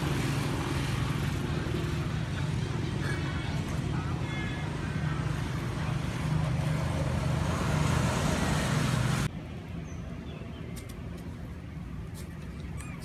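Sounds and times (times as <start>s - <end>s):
motor vehicle running: 0.0s - 9.3s.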